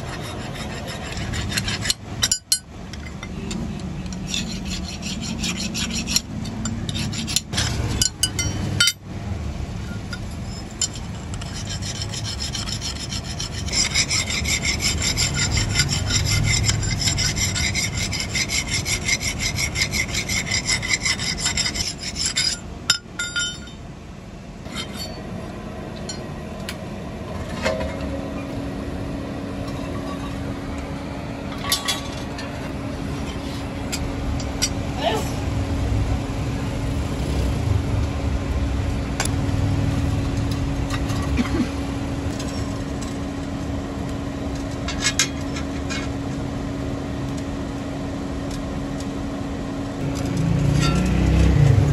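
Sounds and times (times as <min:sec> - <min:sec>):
file rasping on steel: 0:00.0 - 0:02.4, 0:04.1 - 0:07.8, 0:10.3 - 0:22.6
steady low hum: 0:00.0 - 0:51.9.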